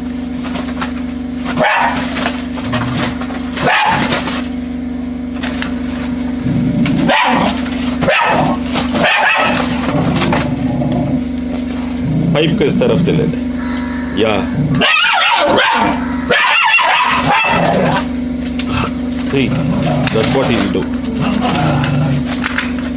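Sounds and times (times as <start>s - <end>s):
low hum: 0.0s - 22.9s
dog barking in a well: 1.5s - 4.4s, 6.8s - 12.0s, 14.7s - 19.1s.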